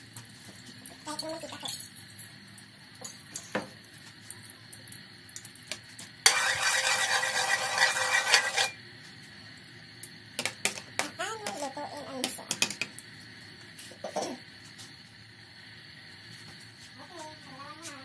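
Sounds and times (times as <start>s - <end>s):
metal spatula scraping wok: 6.2s - 8.8s.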